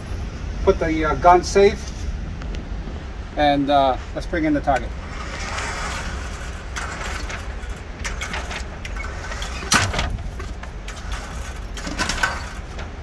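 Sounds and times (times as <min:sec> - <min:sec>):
target carrier motor hum: 0:04.4 - 0:13.0.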